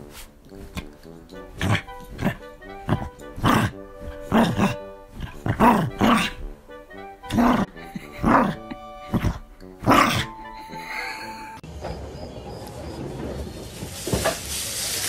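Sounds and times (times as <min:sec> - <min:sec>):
small dog grumbling: 0:01.4 - 0:11.3.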